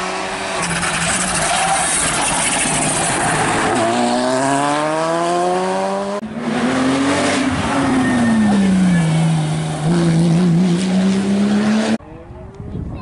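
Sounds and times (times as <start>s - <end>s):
rally car engine accelerating: 0.0s - 12.2s
second rally car engine: 0.0s - 12.8s.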